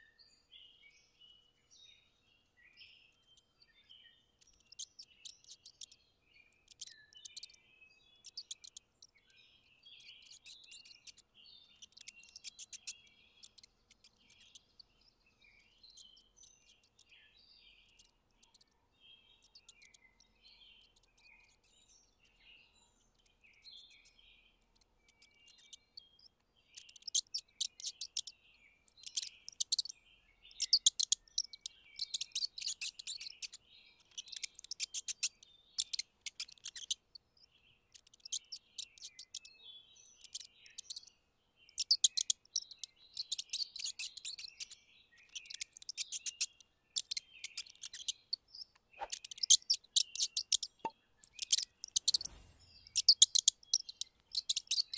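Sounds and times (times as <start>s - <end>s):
mice squeaking: 2.4s - 22.4s, 23.0s - 29.9s, 30.5s - 41.1s, 41.7s - 54.9s.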